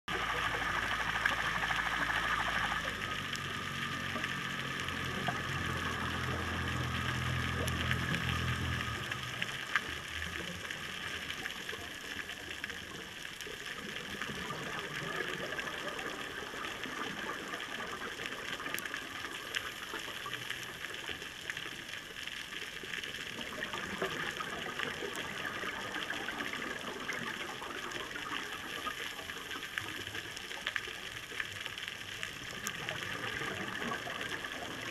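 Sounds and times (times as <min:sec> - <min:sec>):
low rumble: 0:00.1 - 0:11.9.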